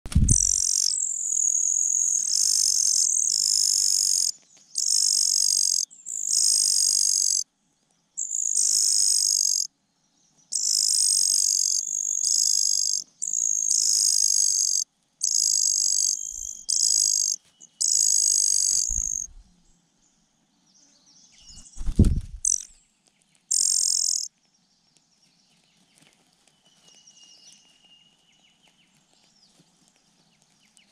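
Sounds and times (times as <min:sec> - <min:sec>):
thump and rustle at nest: 0:00.1 - 0:00.4
nestlings begging calls: 0:00.2 - 0:07.4, 0:08.2 - 0:09.7, 0:10.5 - 0:19.4, 0:21.6 - 0:22.7, 0:23.5 - 0:24.3.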